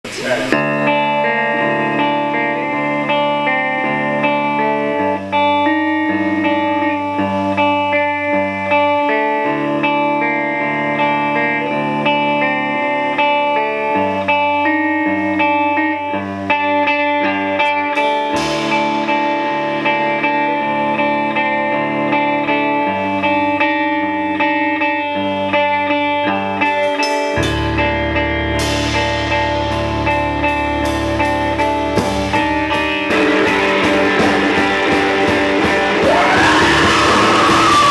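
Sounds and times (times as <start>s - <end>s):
clean electric guitar melody: 0.1s - 37.9s
drum hits: 32.0s - 37.9s.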